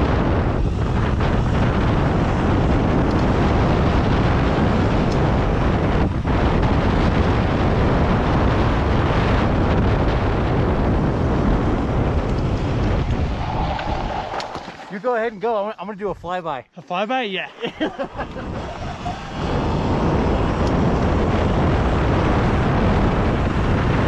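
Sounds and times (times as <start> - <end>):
wind buffeting microphone: 0.0 - 16.4, 17.5 - 24.0.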